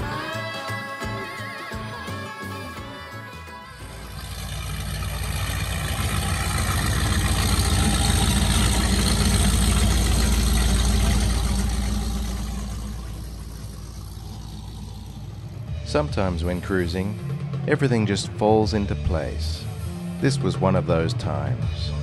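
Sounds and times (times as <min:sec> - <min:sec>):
powerboat engines rumbling: 0:03.4 - 0:22.0.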